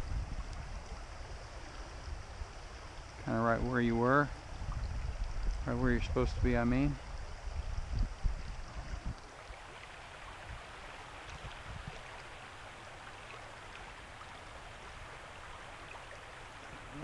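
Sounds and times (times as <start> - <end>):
creek water flowing: 0.0 - 17.0.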